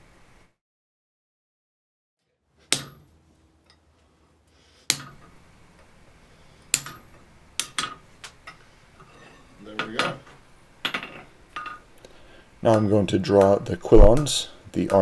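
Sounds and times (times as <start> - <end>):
hammer striking punch on anvil: 2.7 - 3.1, 4.9 - 5.3, 6.7 - 8.0.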